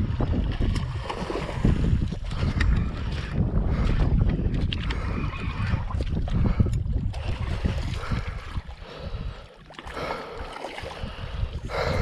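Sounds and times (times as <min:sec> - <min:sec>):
water splashing on rocky shore: 0:00.0 - 0:02.9
wind buffeting microphone: 0:00.0 - 0:12.0
heavy breathing through nose: 0:08.0 - 0:12.0.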